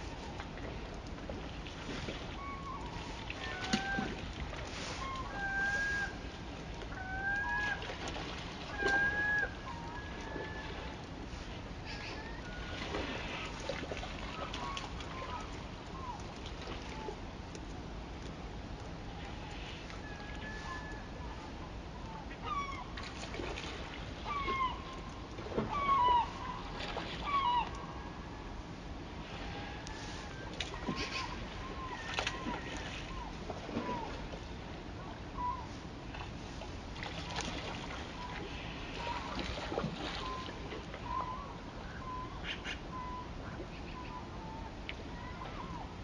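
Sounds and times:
gull calling: 2.3 - 4.2, 4.8 - 6.3, 6.9 - 7.9, 8.6 - 10.9, 11.8 - 13.5, 14.2 - 16.2, 19.6 - 23.1, 24.2 - 25.0, 25.6 - 28.4, 29.3 - 34.3, 35.4 - 35.8, 37.7 - 46.0
birds calling: 24.2 - 28.3, 37.3 - 45.9.

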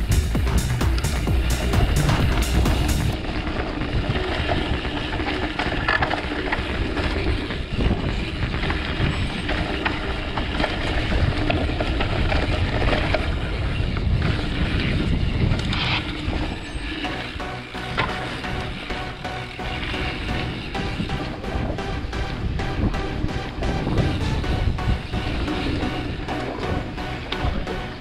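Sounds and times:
bike rattles and clicks: 0.0 - 28.0
bike tyres crunching over dirt: 0.0 - 28.0
low rumble: 0.0 - 28.0.

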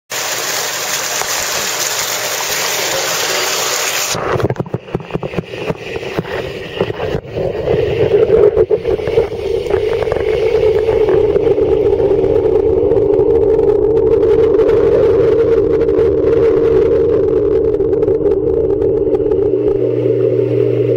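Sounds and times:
water rushing and splashing: 0.1 - 13.0
steady mechanical hum: 0.1 - 20.9
muffled underwater knocks and bumps: 4.2 - 7.4.

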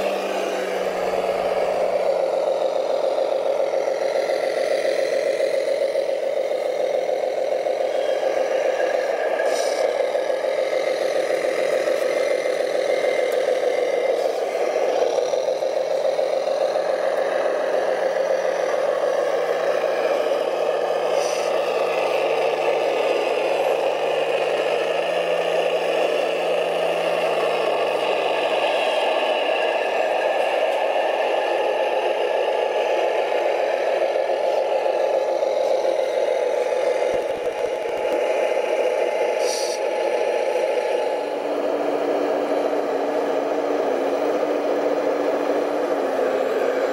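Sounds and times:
low engine-like hum: 0.0 - 46.9
toy trucks driving through mud: 0.0 - 46.9.

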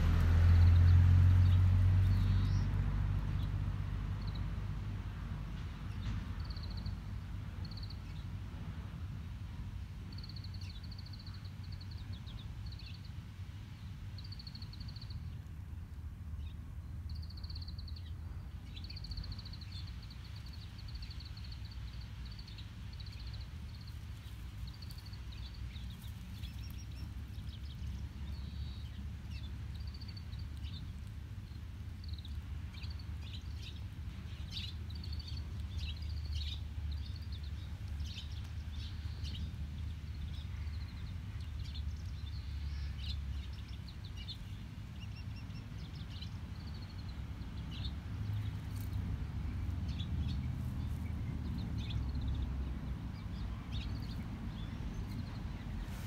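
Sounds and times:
low rumble: 0.0 - 6.4
small bird chirping: 16.4 - 56.0.

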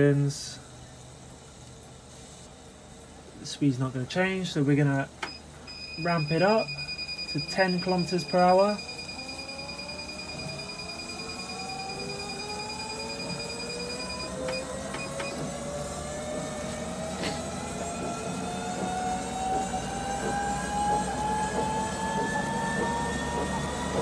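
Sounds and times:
treadmill motor whining: 4.8 - 24.0
short high beeps: 5.3 - 15.4
steady high tone: 5.7 - 15.5.

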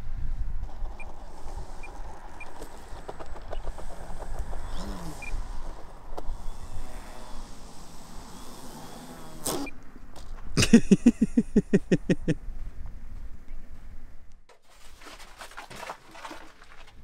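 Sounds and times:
wind rumbling on microphone: 0.0 - 9.3.

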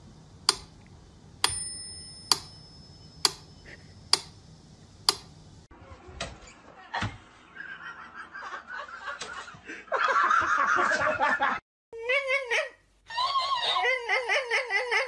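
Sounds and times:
thin high ringing tone: 1.4 - 4.0.

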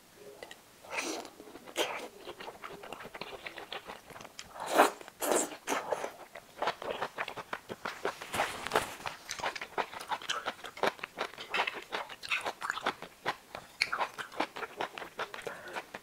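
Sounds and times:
chewing and lip smacks: 0.4 - 16.0
wet slurping of noodles: 4.5 - 6.2.

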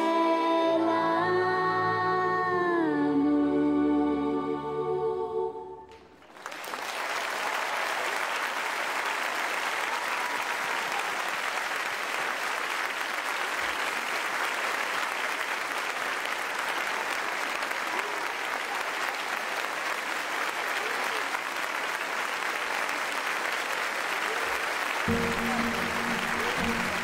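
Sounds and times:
woman singing: 0.0 - 5.9
audience applause: 6.0 - 27.0.

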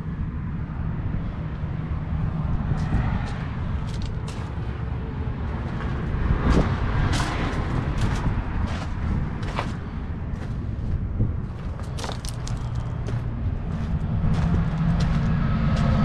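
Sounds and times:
steady low rumble: 0.0 - 16.0
footsteps crunching on gravel: 5.6 - 16.0.

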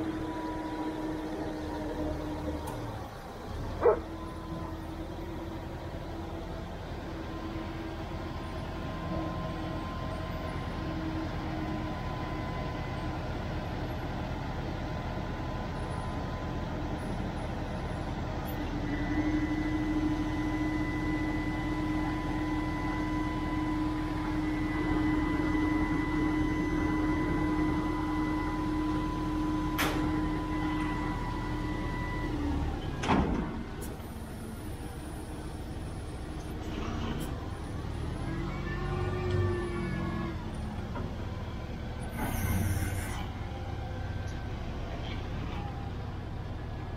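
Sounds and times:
hydraulic whine: 42.0 - 43.6.

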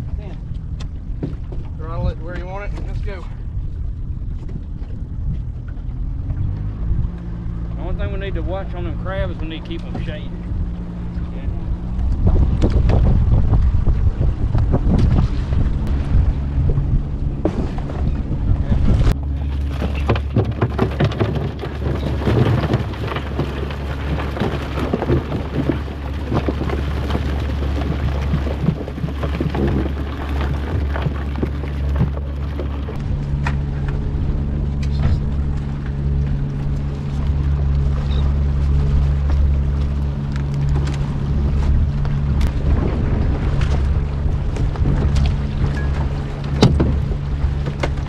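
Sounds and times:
outboard motor running: 0.0 - 48.0
water splashing: 0.0 - 48.0
crackle of small clicks: 39.3 - 41.0.

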